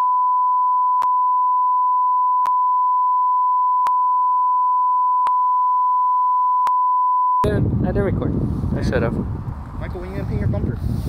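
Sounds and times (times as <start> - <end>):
steady bleep tone: 0.0 - 7.5.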